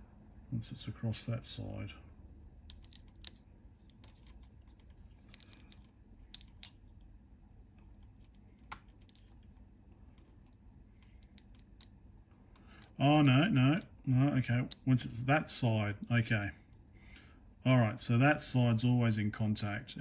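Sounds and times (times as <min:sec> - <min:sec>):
small plastic clicks and taps: 0:02.7 - 0:06.8, 0:07.9 - 0:09.4, 0:10.1 - 0:13.0.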